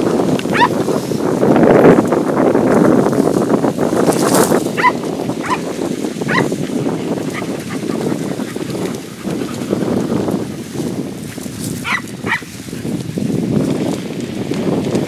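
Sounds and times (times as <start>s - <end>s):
rustling through reeds: 0.0s - 15.0s
dogs yelping: 0.4s - 0.8s, 4.7s - 10.7s, 11.8s - 12.8s.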